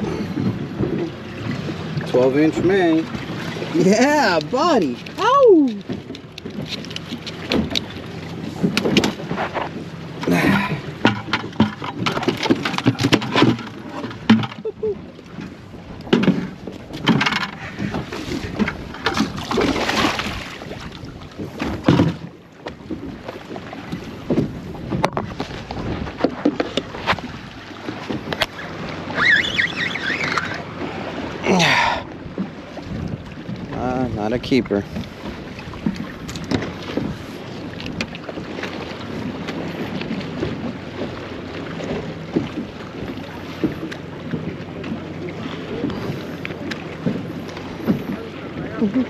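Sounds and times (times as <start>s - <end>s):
water sloshing against boat hull: 0.0s - 49.0s
knocks and clicks from gear: 5.9s - 8.0s, 11.0s - 14.7s, 15.4s - 19.4s.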